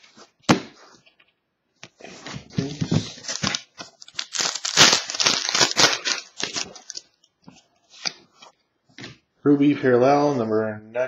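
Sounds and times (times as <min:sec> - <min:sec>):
cards rustling: 0:02.6 - 0:07.1
plastic wrapper crinkling: 0:03.1 - 0:07.1.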